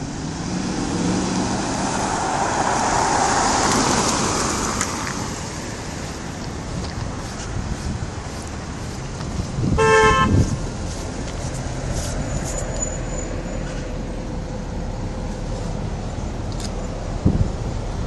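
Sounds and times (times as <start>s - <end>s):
engine and traffic rumble: 0.0s - 18.0s
car horn toot: 9.7s - 10.6s.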